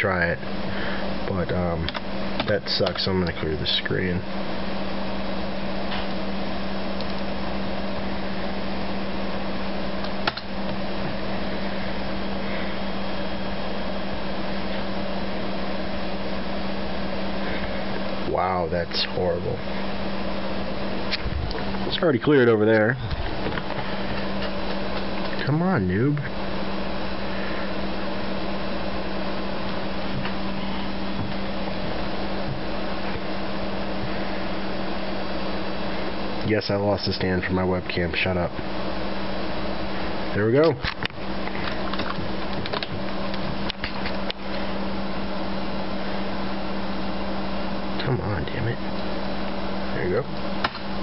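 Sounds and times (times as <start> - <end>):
computers whirring: 0.0 - 51.0
low electrical hum: 0.0 - 51.0.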